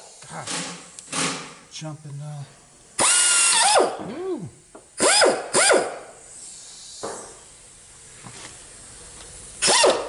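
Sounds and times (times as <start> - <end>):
rotary tool whining: 3.0 - 4.0.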